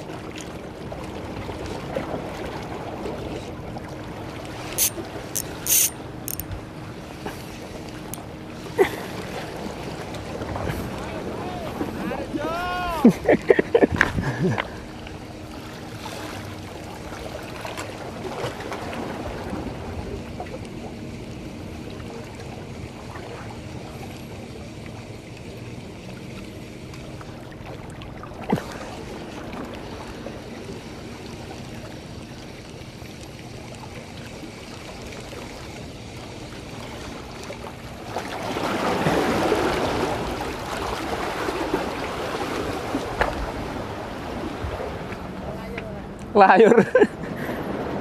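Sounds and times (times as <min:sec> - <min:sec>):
fishing reel cranking: 0:04.7 - 0:06.5
sharp click: 0:04.8 - 0:06.5
water lapping against rocks: 0:27.0 - 0:45.9.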